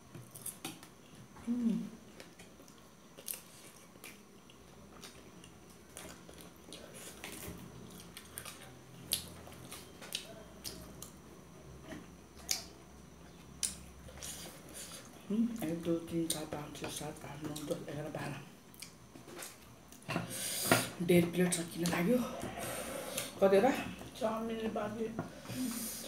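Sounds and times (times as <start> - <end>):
soft chewing: 0.1 - 20.3.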